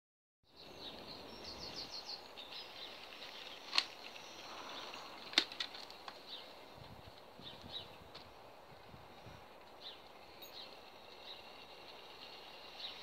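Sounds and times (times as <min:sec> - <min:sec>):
bird chirping: 0:00.5 - 0:06.7, 0:09.7 - 0:13.0.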